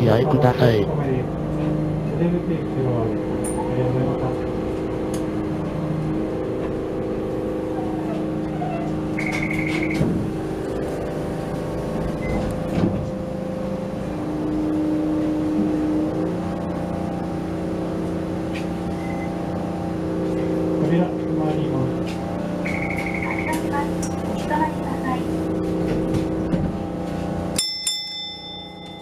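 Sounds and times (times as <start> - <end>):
streetcar electrical hum: 0.0 - 29.0
quick electronic beeps: 9.2 - 10.0, 22.6 - 23.5.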